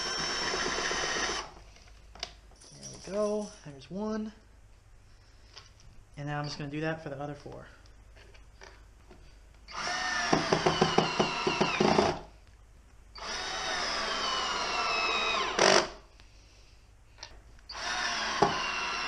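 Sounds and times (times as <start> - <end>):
cordless drill driving screws: 0.0 - 1.5, 9.7 - 12.2, 13.2 - 16.0, 17.7 - 19.0.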